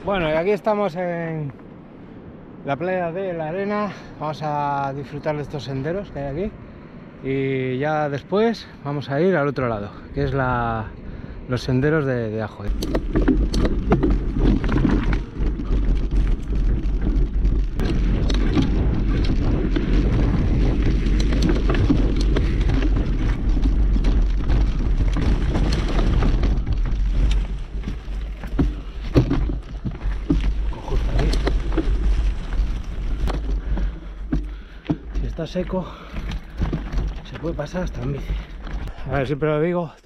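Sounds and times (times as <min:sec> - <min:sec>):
wind rumble on microphone: 0:00.0 - 0:39.4
bike rattling and knocking: 0:12.5 - 0:39.1.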